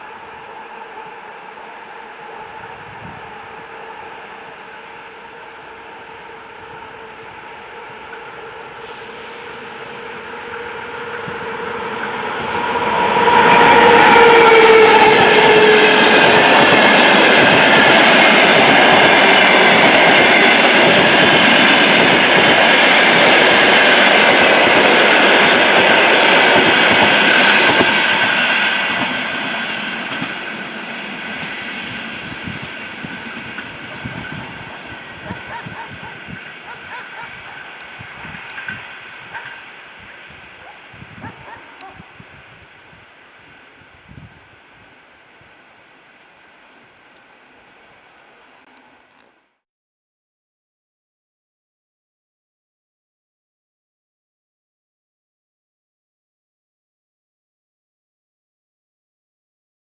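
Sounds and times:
electric locomotive humming: 0:00.0 - 0:49.5
train wheels clacking on rails: 0:08.8 - 0:34.5.

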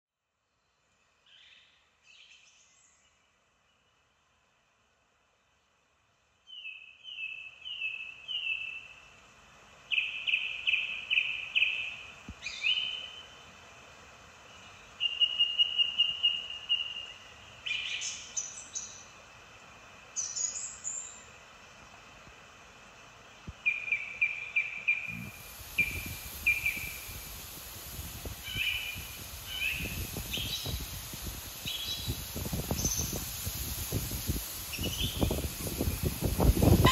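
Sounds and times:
small birds singing: 0:00.5 - 0:04.1, 0:06.4 - 0:09.1, 0:09.8 - 0:13.5, 0:14.4 - 0:19.2, 0:20.1 - 0:21.4, 0:23.2 - 0:36.9
rustling reeds: 0:25.1 - 0:36.9
wind on microphone: 0:25.1 - 0:36.9.

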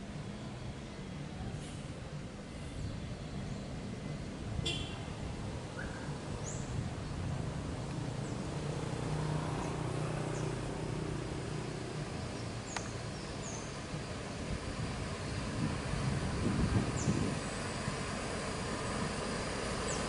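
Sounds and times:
bus engine hum: 0:00.0 - 0:20.0.

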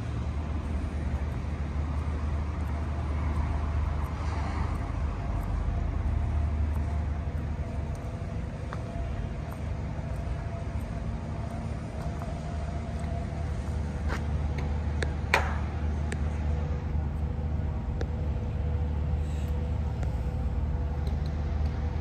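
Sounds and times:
harbour ambience rumble: 0:00.0 - 0:22.0.

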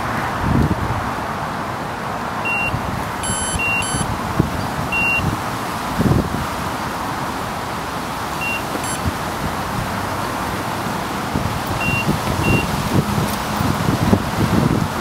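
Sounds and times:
wind noise on microphone: 0:00.0 - 0:07.6, 0:08.2 - 0:15.0
electronic alarm bleeps: 0:02.4 - 0:04.1, 0:04.9 - 0:05.3, 0:08.4 - 0:09.1, 0:11.8 - 0:12.7.

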